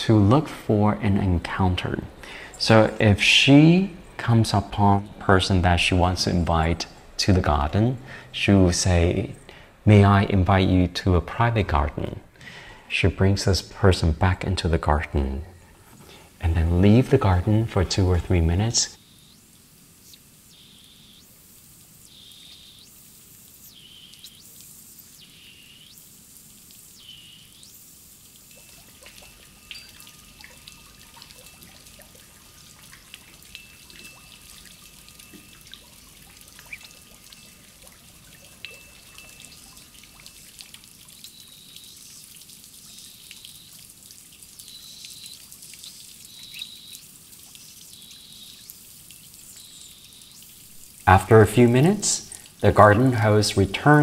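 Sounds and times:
fountain splashing into pond: 16.6 - 54.0
bird chirping: 19.0 - 26.1, 26.8 - 43.8, 44.4 - 51.0.

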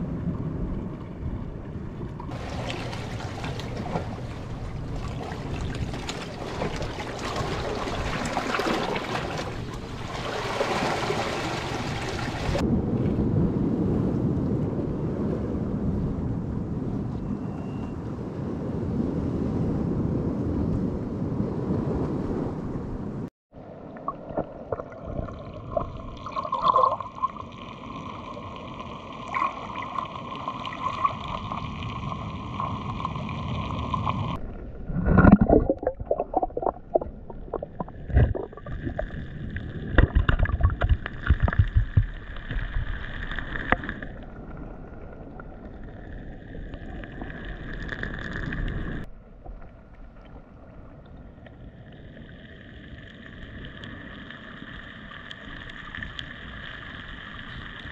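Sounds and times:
muffled water sloshing underwater: 0.0 - 17.9, 19.2 - 57.9
knocks and splashes: 2.2 - 12.6, 34.3 - 39.2, 39.8 - 44.2.

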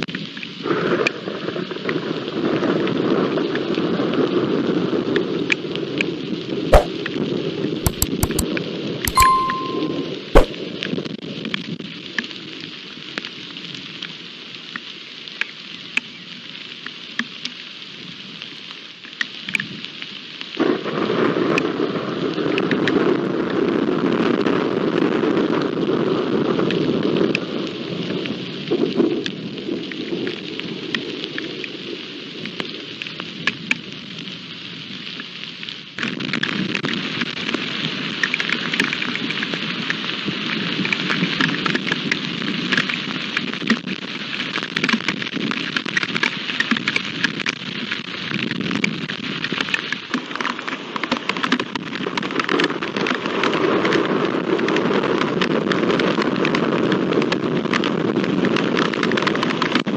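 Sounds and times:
heavy rain pouring: 19.7 - 59.9
raindrops tapping close by: 24.9 - 59.9.

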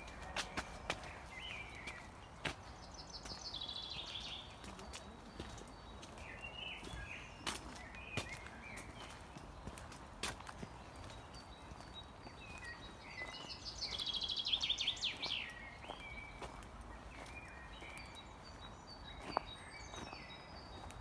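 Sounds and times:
birds calling quietly: 0.0 - 21.0
footsteps on mulch path: 0.0 - 21.0
songbird loud falling song: 10.9 - 21.0.

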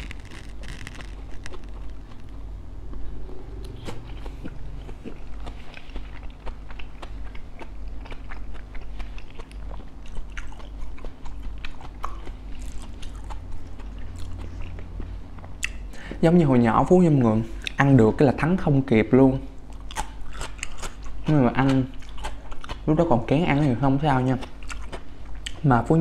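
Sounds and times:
crunchy chewing: 0.0 - 15.9, 19.6 - 22.9, 24.2 - 25.7.

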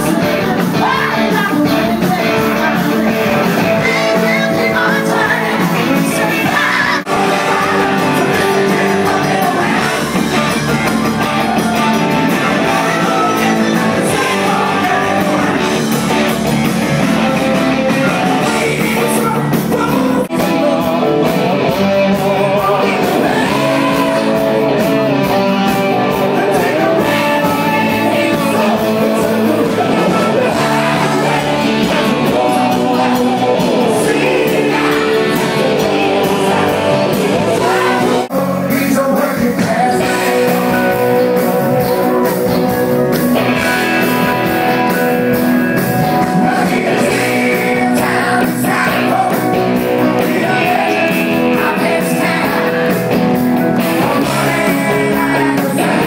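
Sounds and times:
live rock band playing: 0.0 - 56.0
sung lead vocals: 0.0 - 56.0.

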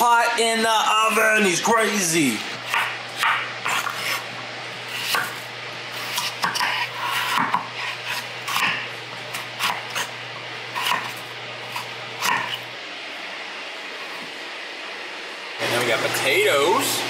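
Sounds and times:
steady low hum: 0.0 - 17.0
knife striking cutting board: 2.7 - 4.2, 6.0 - 8.8, 10.8 - 12.6.

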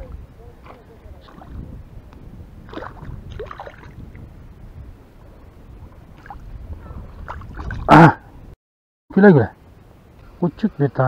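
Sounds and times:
wind rumble on microphone: 0.0 - 8.6
fish splashing in water: 2.6 - 4.0.

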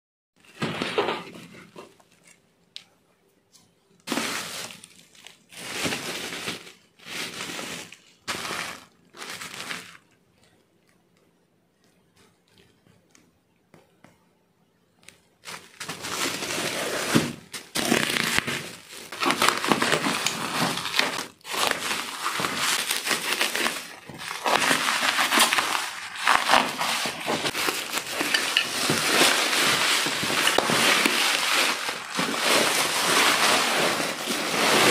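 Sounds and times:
bubble wrap crinkling and tearing: 4.0 - 11.0, 15.4 - 34.9
plastic rustling: 4.0 - 11.0, 15.1 - 34.9.

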